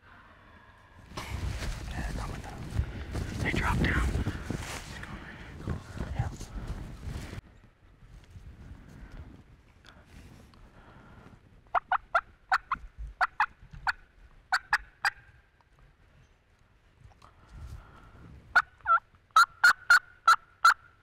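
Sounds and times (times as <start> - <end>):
turkey yelps: 18.6 - 20.8.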